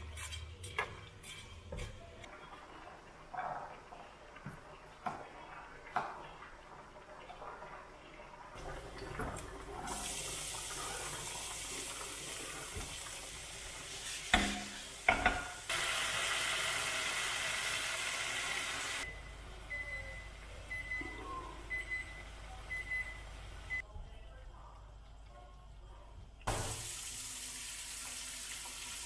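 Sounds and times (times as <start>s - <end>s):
food sizzling in frying pan: 9.9s - 19.1s, 26.5s - 29.0s.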